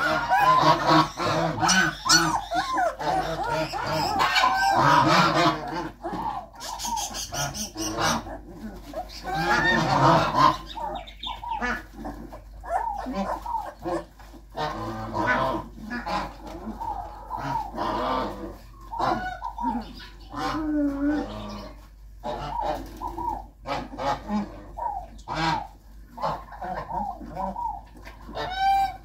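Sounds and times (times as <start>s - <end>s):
puppy whining and crying: 1.7s - 14.2s.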